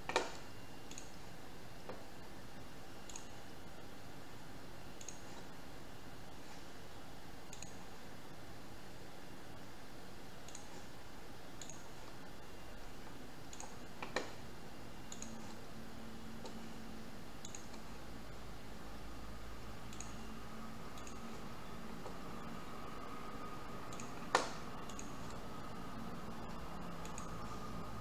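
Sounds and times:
computer mouse clicking: 0.0s - 2.1s, 3.0s - 3.5s, 5.0s - 5.6s, 7.4s - 7.9s, 10.4s - 11.0s, 11.6s - 12.3s, 13.5s - 14.4s, 15.1s - 15.7s, 16.3s - 16.8s, 17.4s - 18.0s, 19.8s - 22.5s, 23.8s - 25.4s, 26.3s - 27.8s
steady low hiss: 0.0s - 28.0s.

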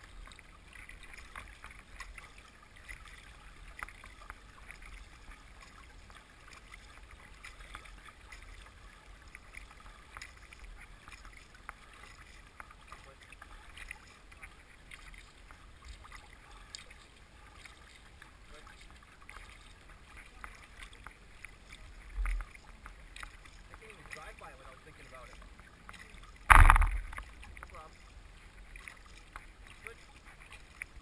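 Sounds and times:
water splashing along boat bow: 0.0s - 31.0s.

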